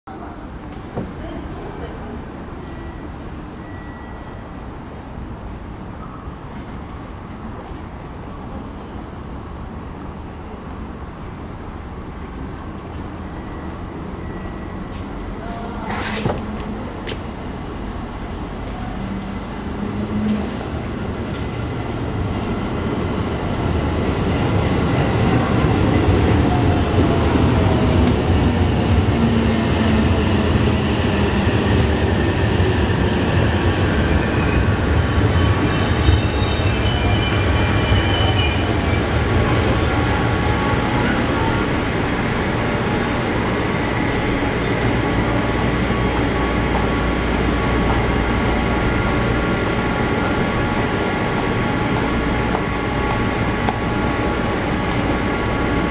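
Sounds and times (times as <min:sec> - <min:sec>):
electric train rumbling: 0:00.2 - 0:55.9
wheel and brake squealing: 0:34.2 - 0:45.3.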